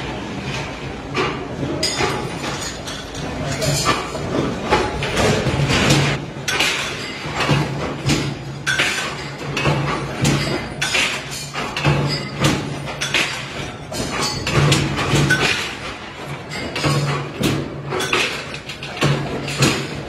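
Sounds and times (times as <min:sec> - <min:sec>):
power press clanks and thumps: 0:00.2 - 0:20.0.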